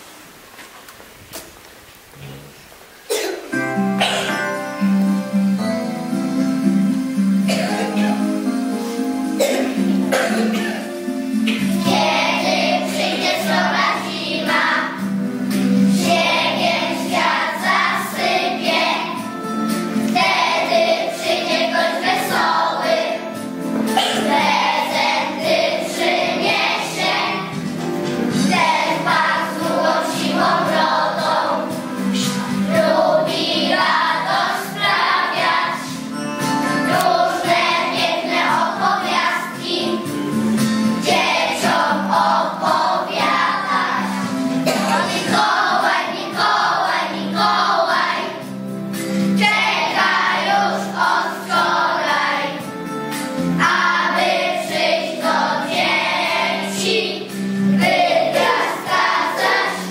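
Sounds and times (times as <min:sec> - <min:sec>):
musical accompaniment: 0:02.2 - 0:59.9
children singing in chorus: 0:09.3 - 0:15.1, 0:15.9 - 0:19.3, 0:20.0 - 0:36.2, 0:36.8 - 0:40.4, 0:41.0 - 0:48.5, 0:49.2 - 0:52.7, 0:53.6 - 0:59.9.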